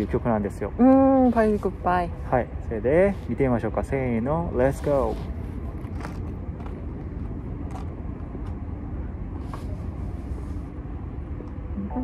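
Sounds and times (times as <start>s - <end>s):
low outdoor rumble: 0.0s - 12.0s.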